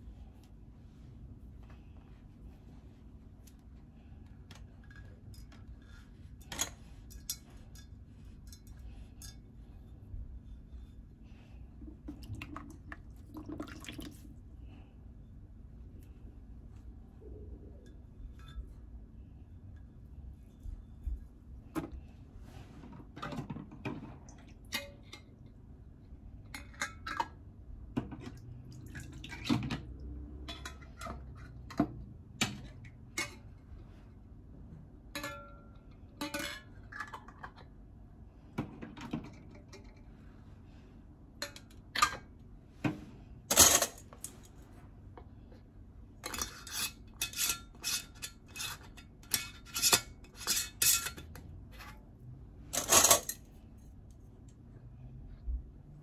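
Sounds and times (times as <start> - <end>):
metal lids clinking on glass jars: 46.2 - 51.4.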